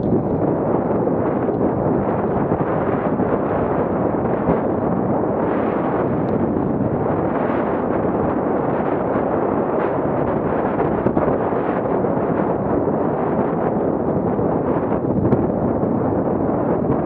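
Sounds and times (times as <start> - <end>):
bike tyres rumbling and rattling: 0.0 - 8.6
wind buffeting microphone: 0.0 - 17.0.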